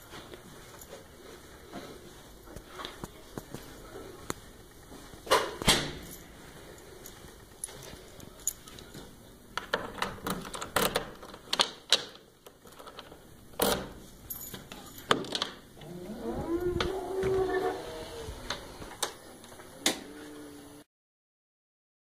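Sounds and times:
key working door lock: 9.6 - 15.9
keys jangling: 14.2 - 16.0.

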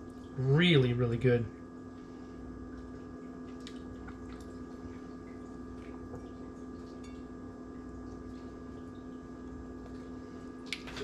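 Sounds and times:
steady background hum: 0.0 - 11.0
soft wet clicks and drips: 2.7 - 11.0.

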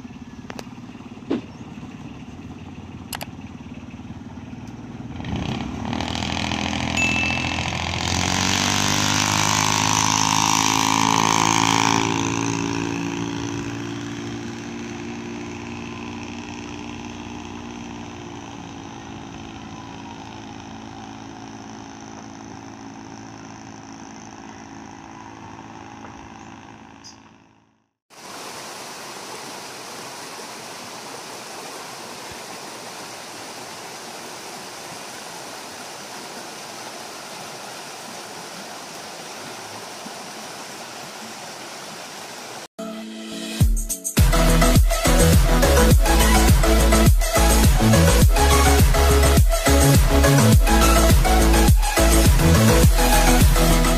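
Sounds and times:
boat engine running: 0.0 - 28.0, 44.3 - 53.9
stream rushing: 5.2 - 21.2, 28.1 - 42.7.

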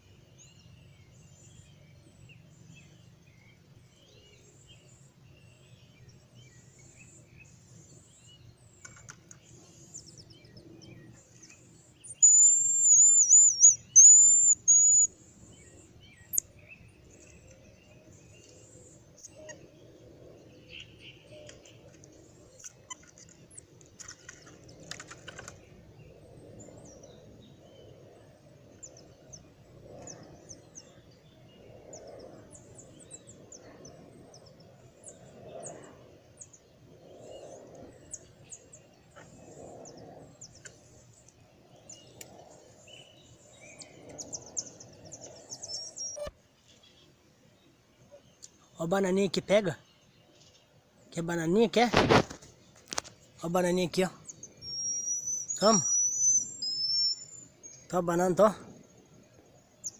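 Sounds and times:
faint high chirps and ticks: 5.8 - 47.1, 48.0 - 51.3
marmoset trill call: 12.2 - 15.1, 54.6 - 57.3.

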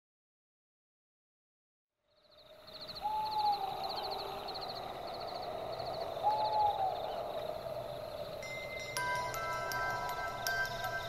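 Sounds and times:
owl hooting: 2.8 - 8.6
high rhythmic chirping: 8.3 - 11.0.

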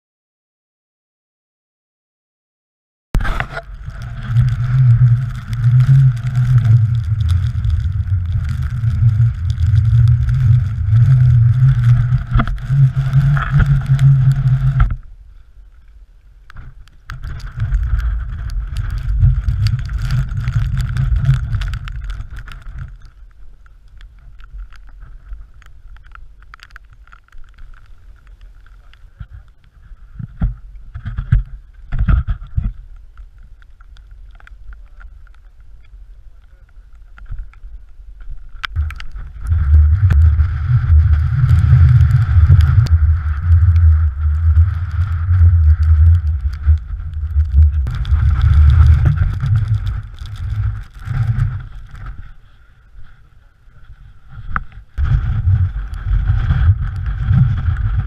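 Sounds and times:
wind buffeting microphone: 3.2 - 15.0, 37.2 - 52.3, 53.9 - 58.0.

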